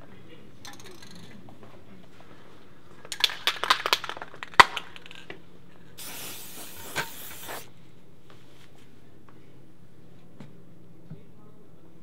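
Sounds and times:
spray can ball rattling: 0.7s - 1.3s, 6.0s - 7.7s
spray can hissing: 6.0s - 7.7s.

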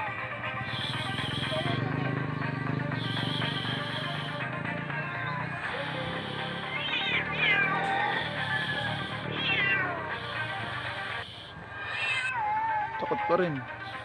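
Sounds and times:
cat meowing: 6.6s - 12.7s.

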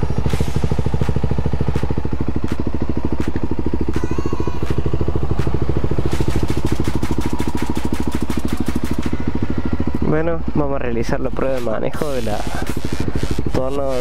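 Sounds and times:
motorcycle engine idling: 0.0s - 14.0s
rapid light ticks: 0.3s - 9.4s.

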